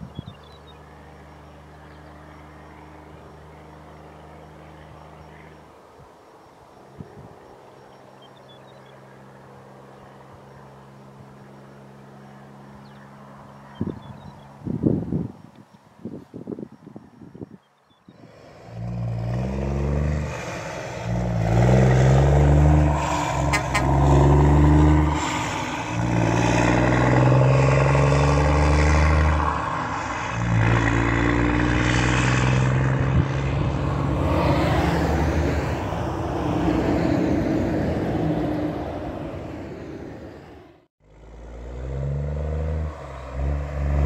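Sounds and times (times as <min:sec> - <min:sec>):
truck diesel engine shifting gears: 0:18.2 - 0:44.0.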